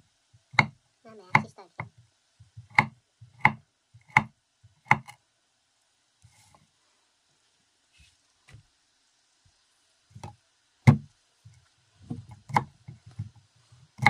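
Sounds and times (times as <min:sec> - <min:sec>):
knife knocking on wooden board: 0:01.8 - 0:04.3, 0:10.9 - 0:11.1.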